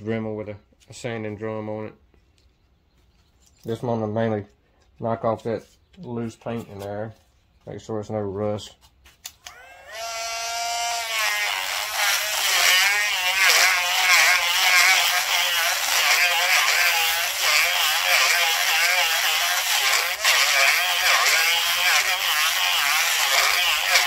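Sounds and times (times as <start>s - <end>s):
rotary tool sanding whine: 9.5s - 24.0s.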